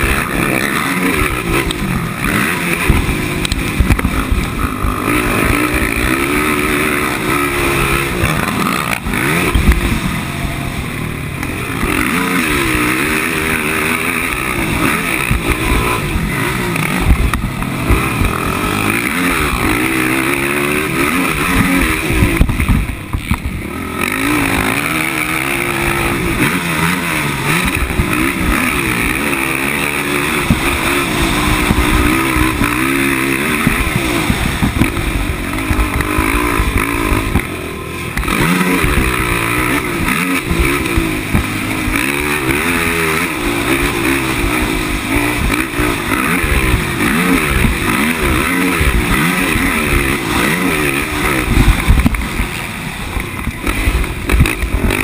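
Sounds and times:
quad engine revving: 0:00.0 - 0:55.0
wind rushing over microphone: 0:20.7 - 0:42.0, 0:51.0 - 0:55.0.

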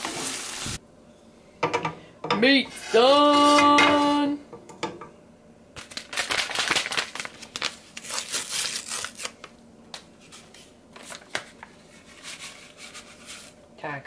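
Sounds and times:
paper packet tearing and crinkling: 0:05.8 - 0:09.5.

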